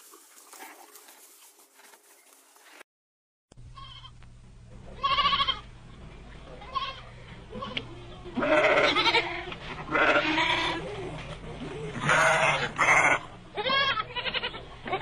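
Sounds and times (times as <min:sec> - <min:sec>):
sheep bleating: 0:03.7 - 0:04.2, 0:05.0 - 0:05.7, 0:06.6 - 0:10.8, 0:12.0 - 0:15.0.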